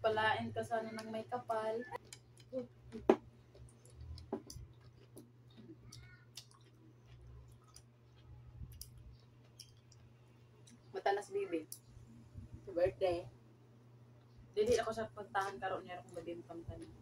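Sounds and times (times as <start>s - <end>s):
clicks of seaweed beads being chewed: 3.5s - 10.8s.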